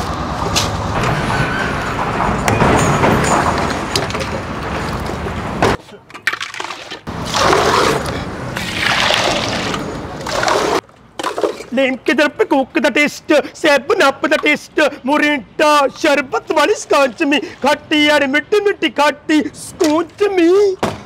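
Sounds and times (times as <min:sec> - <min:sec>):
steady dense noise: 0:00.0 - 0:06.0.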